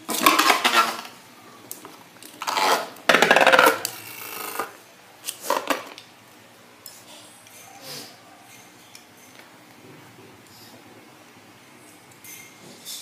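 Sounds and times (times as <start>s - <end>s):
spinning top rattling on cardboard: 2.5s - 3.8s.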